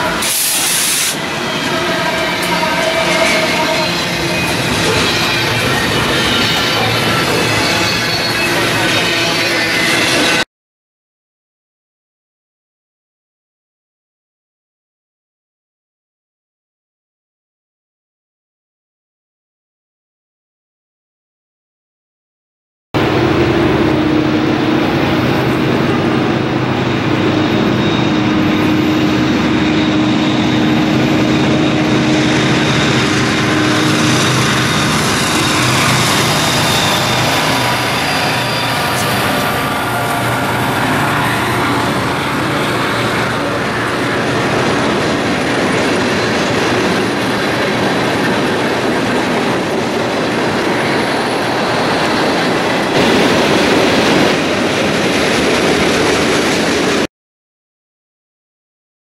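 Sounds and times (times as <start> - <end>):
freight cars rumbling on rails: 0.0 - 10.4, 23.0 - 57.1
locomotive engines droning: 0.0 - 10.4, 23.0 - 57.0
faint wheel squeal: 34.5 - 41.8.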